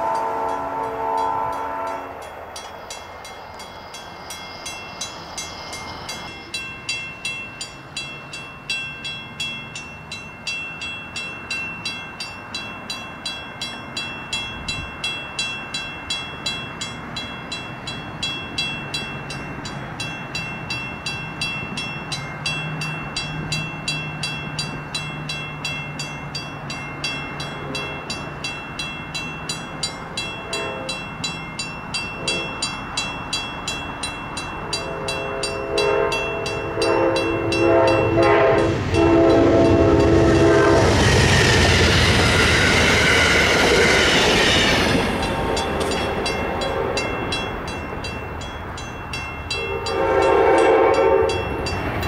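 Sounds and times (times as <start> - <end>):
train horn: 0.0 - 2.2, 30.4 - 31.0, 32.2 - 32.6, 34.7 - 41.2, 49.6 - 51.6
railroad crossing bell ringing: 0.0 - 52.0
train rumble: 0.0 - 52.0.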